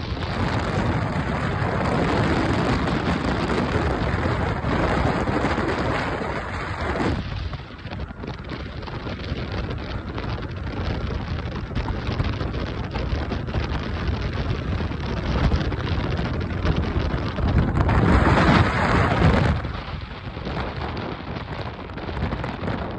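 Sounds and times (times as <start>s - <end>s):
car road noise at highway speed: 0.0s - 22.9s
wind rushing over microphone: 0.0s - 22.9s.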